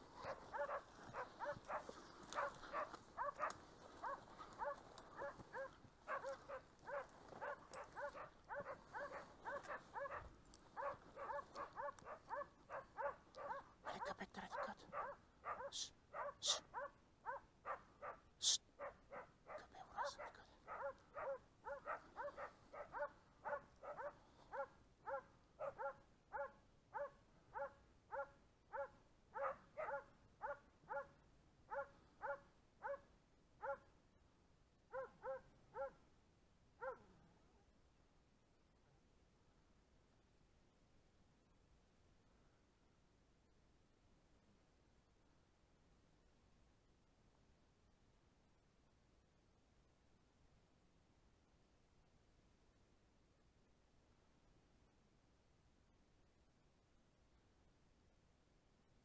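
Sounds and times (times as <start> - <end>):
dog barking faintly: 0.0 - 34.0, 34.9 - 36.0, 36.8 - 37.7.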